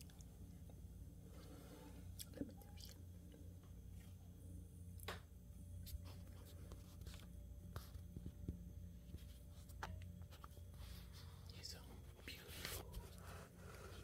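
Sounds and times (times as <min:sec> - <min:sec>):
low steady hum: 0:00.0 - 0:14.0
faint scratchy rustles: 0:05.8 - 0:14.0.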